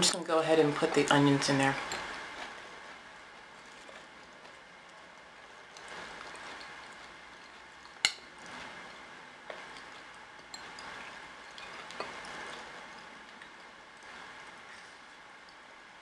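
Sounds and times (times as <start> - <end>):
fork stirring beans: 5.7 - 13.7.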